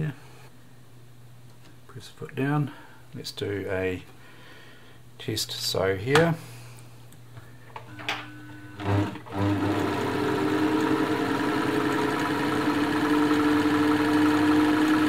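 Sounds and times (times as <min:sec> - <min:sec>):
sewing machine running: 0:08.8 - 0:15.0.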